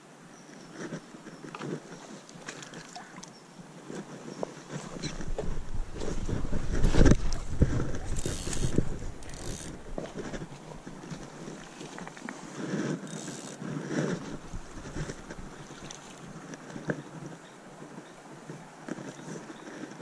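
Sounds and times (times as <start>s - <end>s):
wind buffeting microphone: 4.6s - 11.7s, 13.0s - 18.1s
net drawn through water: 5.9s - 16.7s.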